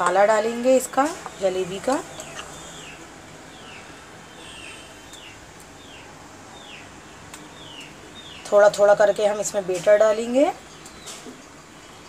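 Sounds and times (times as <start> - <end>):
small bird chirping: 1.3 - 6.9.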